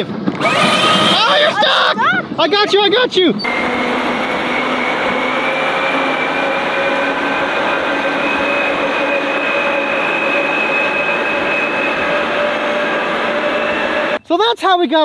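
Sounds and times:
high drivetrain whine: 0:00.1 - 0:02.0, 0:03.3 - 0:14.2
dump truck driving past: 0:03.4 - 0:14.2.

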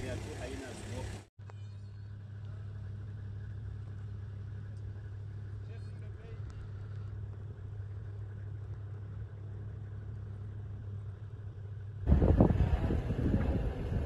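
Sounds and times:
vehicle engine humming: 0:00.0 - 0:14.0
wind buffeting microphone: 0:12.0 - 0:14.0.

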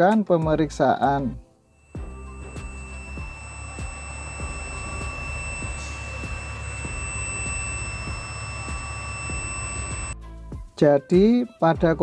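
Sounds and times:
high-pitched electronic beep tone: 0:01.8 - 0:10.2
low hum: 0:01.8 - 0:10.2.

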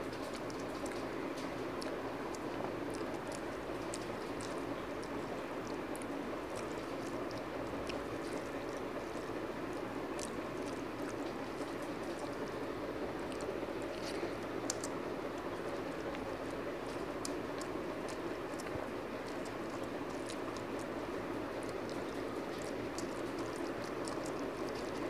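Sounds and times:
chewing: 0:00.0 - 0:25.0.

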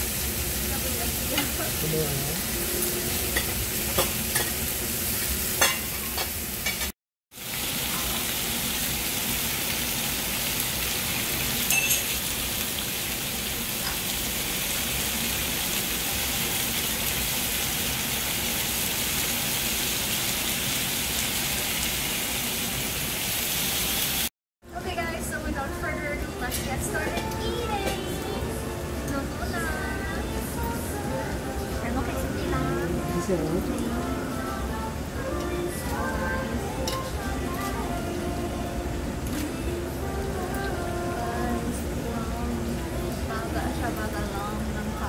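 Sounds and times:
meat sizzling on a grill pan: 0:00.0 - 0:24.3.

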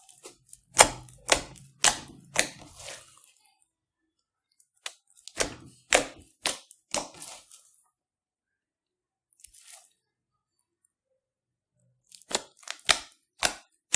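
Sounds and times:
crackly slime squishes: 0:00.0 - 0:03.4, 0:04.6 - 0:07.8, 0:11.8 - 0:13.9.

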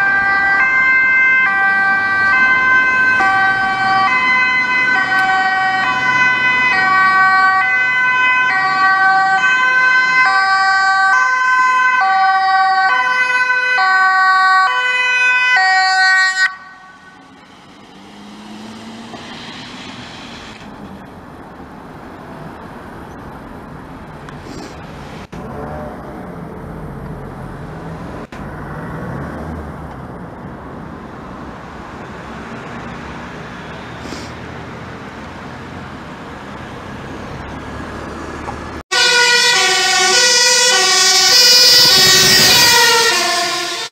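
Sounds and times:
vehicle engine: 0:00.0 - 0:11.7, 0:16.4 - 0:43.9
ambulance two-tone siren: 0:00.0 - 0:17.7, 0:38.9 - 0:43.9
traffic noise: 0:00.0 - 0:43.9.

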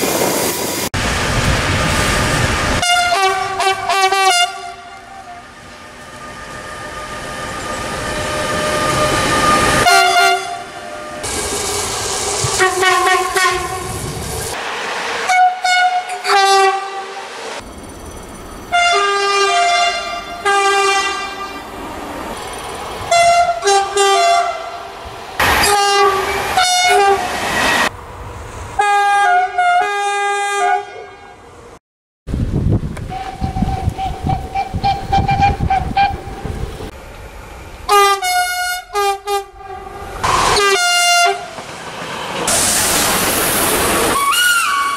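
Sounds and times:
passing train rush and clatter: 0:00.0 - 0:44.9
train horn blasts: 0:02.8 - 0:07.1, 0:08.3 - 0:11.2, 0:12.6 - 0:13.9, 0:15.3 - 0:17.2, 0:18.7 - 0:21.6, 0:23.1 - 0:24.9, 0:25.6 - 0:27.3, 0:28.8 - 0:31.4, 0:33.1 - 0:36.3, 0:37.9 - 0:41.6, 0:44.2 - 0:44.9.

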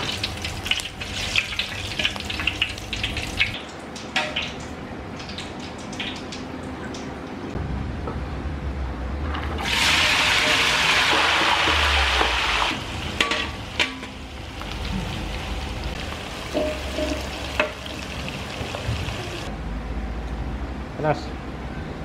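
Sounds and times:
shallots sizzling in hot oil: 0:09.6 - 0:19.5
metal spatula scraping a wok: 0:16.5 - 0:17.5.

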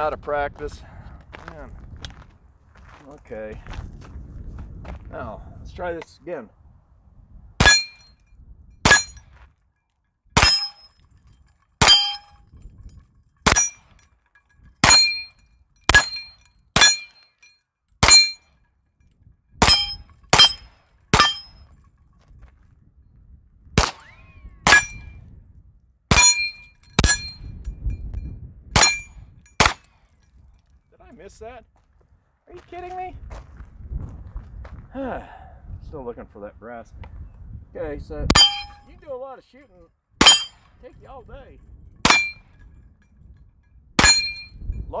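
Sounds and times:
metallic ring of steel plate: 0:07.6 - 0:08.2, 0:08.8 - 0:09.3, 0:10.4 - 0:18.7, 0:19.6 - 0:22.2, 0:24.0 - 0:25.2, 0:26.1 - 0:29.9, 0:38.3 - 0:39.1, 0:40.2 - 0:41.3, 0:41.9 - 0:43.4, 0:44.0 - 0:44.9
carbine gunshots: 0:13.4 - 0:13.7, 0:23.8 - 0:25.0.

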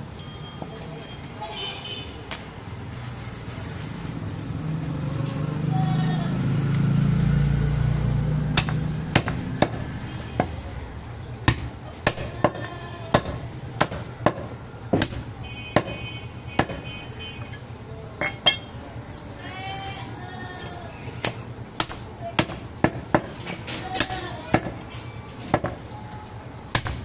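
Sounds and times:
cleaver chopping meat on wood: 0:08.5 - 0:10.6, 0:11.4 - 0:16.0, 0:16.6 - 0:16.8, 0:21.2 - 0:23.4, 0:26.7 - 0:27.0.

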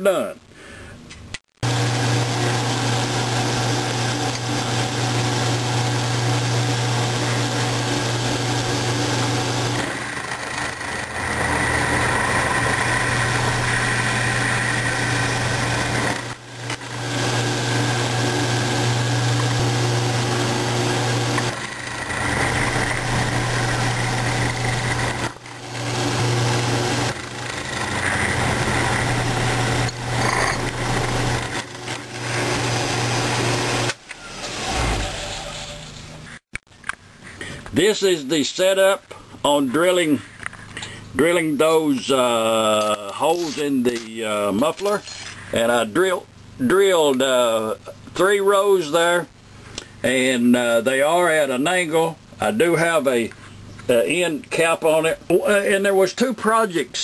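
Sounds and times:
milling machine cutting: 0:01.6 - 0:35.8.

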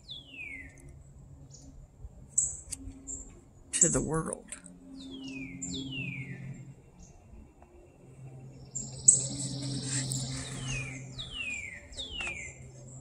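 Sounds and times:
songbird whistling: 0:00.0 - 0:00.8, 0:08.7 - 0:12.6.

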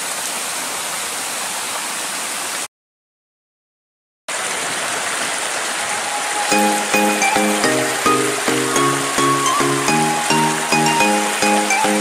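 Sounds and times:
river water rushing: 0:04.3 - 0:12.0.

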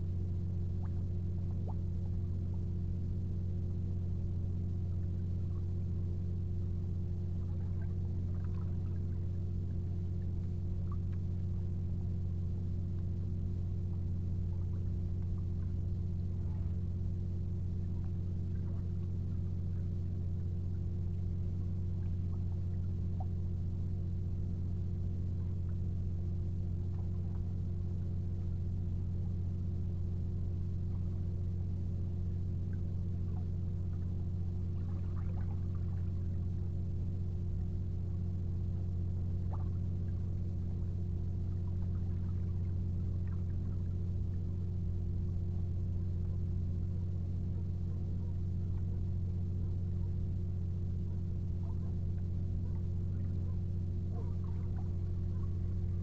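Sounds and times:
steady low hum: 0:00.0 - 0:56.0
faint ticks: 0:07.0 - 0:12.0, 0:12.8 - 0:16.9.

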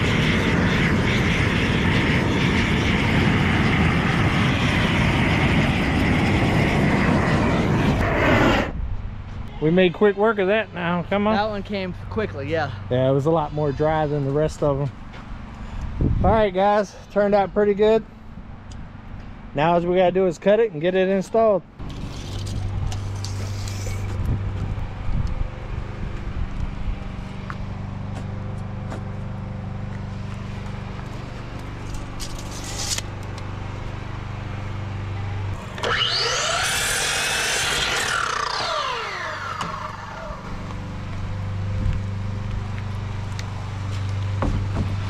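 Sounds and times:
miter saw cutting wood: 0:21.8 - 0:24.3, 0:30.0 - 0:33.5, 0:35.5 - 0:41.5.

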